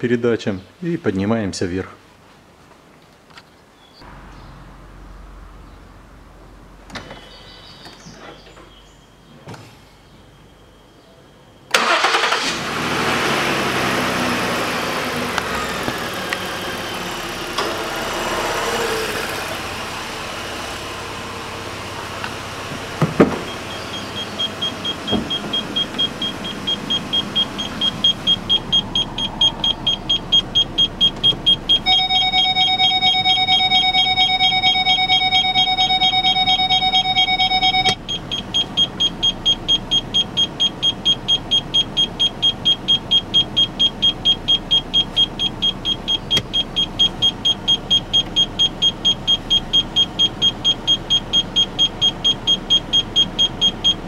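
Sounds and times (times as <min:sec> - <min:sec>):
car engine idling: 0:11.7 - 0:54.0
car warning chime beeping: 0:23.4 - 0:54.0
steady multi-pitch tone: 0:23.9 - 0:38.4.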